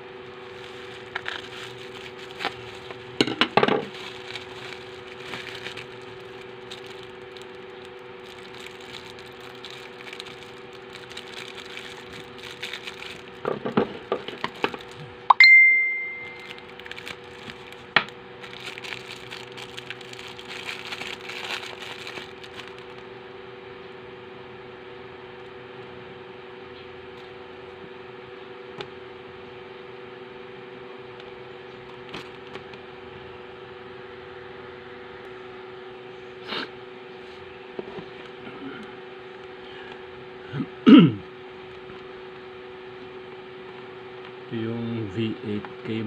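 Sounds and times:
steady low hum: 0.0 - 46.0
plastic packaging crinkling: 0.3 - 15.2, 16.1 - 23.1.

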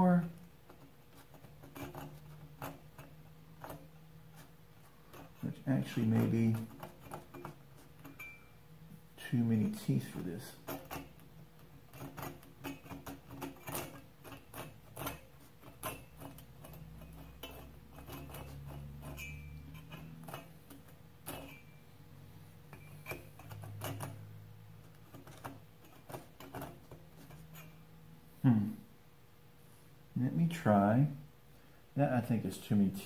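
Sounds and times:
hand saw scraping wood: 0.7 - 8.4, 9.5 - 21.8, 22.4 - 27.8.

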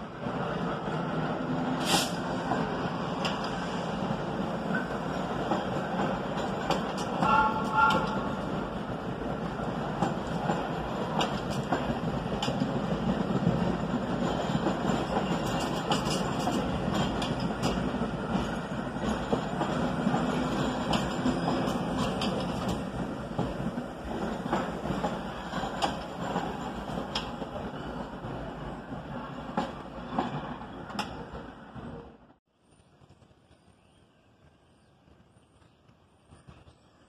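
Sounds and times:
subway train rumbling: 0.0 - 37.0
wheels clicking over rail joints: 4.7 - 8.6, 9.3 - 28.4.

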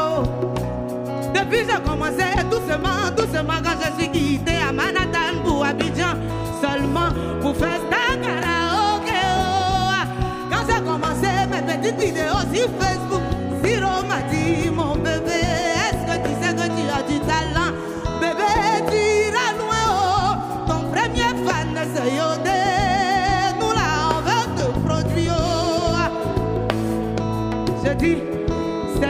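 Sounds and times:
bass guitar: 0.0 - 29.0
drums: 0.0 - 29.0
woman singing with vibrato: 0.0 - 29.0.

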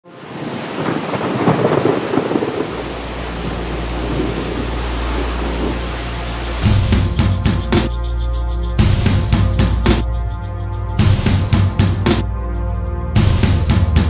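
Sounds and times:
steady rain: 0.0 - 7.7
thunder rumbling: 0.2 - 7.9.

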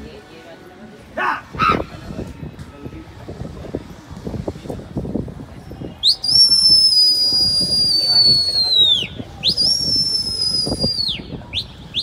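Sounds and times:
man whistling loudly: 6.0 - 12.0.

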